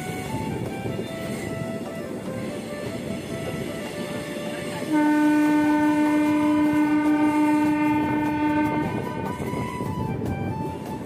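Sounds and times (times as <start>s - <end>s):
moving train rumble: 0.0s - 11.0s
train horn blast: 2.4s - 10.8s.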